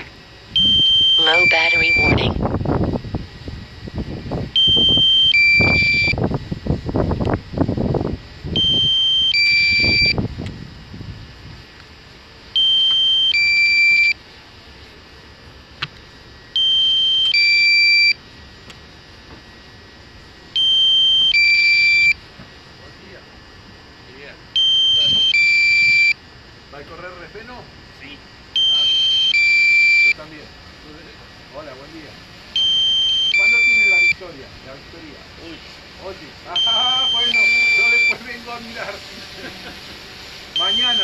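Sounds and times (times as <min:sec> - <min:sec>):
electronic alarm beeping: 0:00.5 - 0:02.4, 0:04.5 - 0:06.2, 0:08.5 - 0:10.2, 0:12.5 - 0:14.2, 0:16.5 - 0:18.2, 0:20.5 - 0:22.2, 0:24.5 - 0:26.2, 0:28.6 - 0:30.3, 0:32.6 - 0:34.3, 0:36.5 - 0:38.3, 0:40.6 - 0:41.0.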